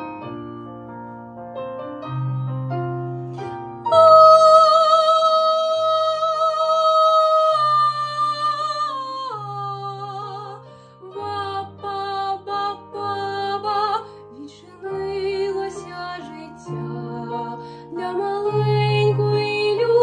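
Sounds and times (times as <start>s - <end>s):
instrumental accompaniment: 0.0s - 17.9s
girl singing: 3.9s - 20.0s.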